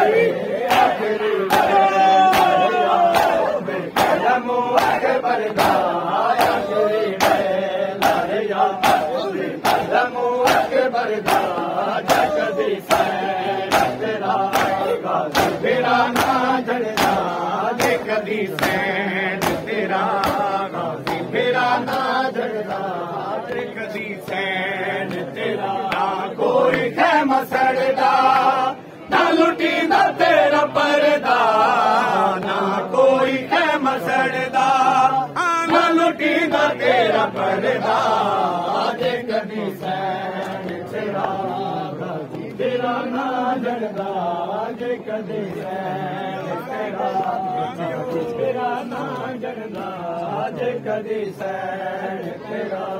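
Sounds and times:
men chanting in unison: 0.0s - 52.9s
hands slapping chests: 1.5s - 4.2s, 4.8s - 21.3s.

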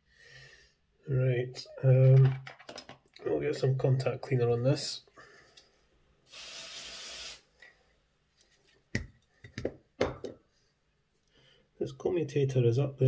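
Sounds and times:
sharp clicks and knocks: 2.0s - 3.2s
aerosol spray burst: 6.3s - 7.5s.

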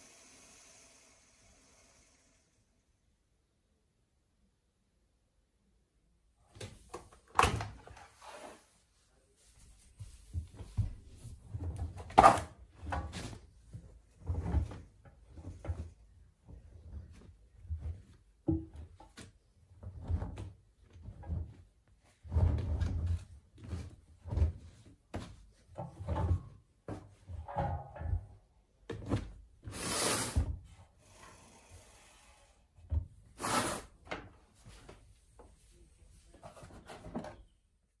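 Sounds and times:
wet towels rustling and thudding: 9.5s - 29.7s.

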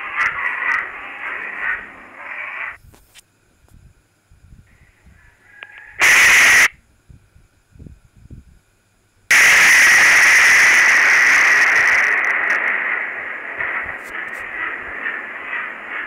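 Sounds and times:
harsh microphone overload hiss: 0.0s - 16.0s
overwhelming thunder blast: 9.3s - 16.0s
thunder crack: 9.3s - 16.0s.

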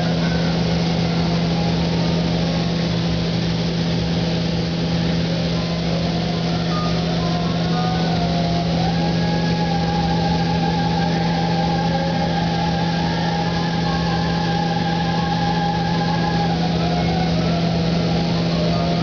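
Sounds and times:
ventilation air hum: 0.0s - 19.0s
thin whistling tone: 5.6s - 19.0s.

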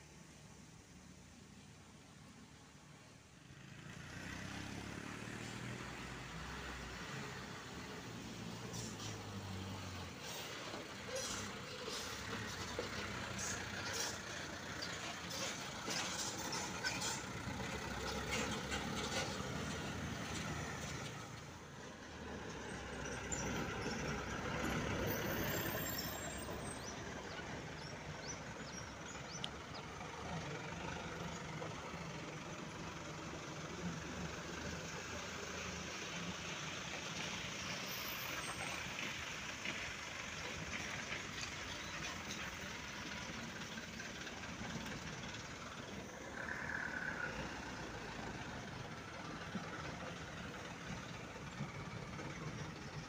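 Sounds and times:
diesel truck engines: 0.0s - 53.0s.

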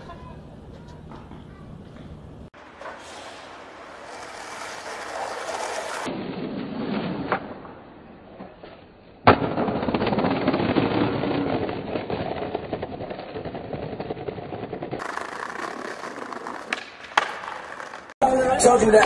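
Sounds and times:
skateboard wheels rolling: 0.0s - 19.0s
skateboard landing slam: 9.2s - 18.1s.

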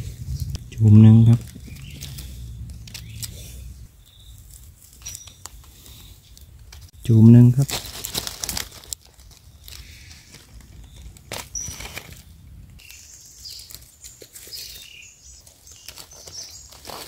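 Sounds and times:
dry leaves rustling and crackling: 0.0s - 17.0s
faint high chirps: 0.5s - 6.6s.

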